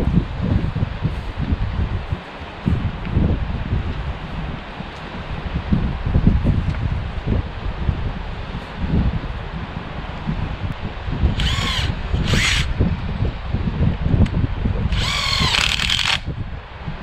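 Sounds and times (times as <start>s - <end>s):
wind rumble on microphone: 0.0s - 17.0s
cordless drill running: 11.3s - 12.7s, 14.9s - 16.3s.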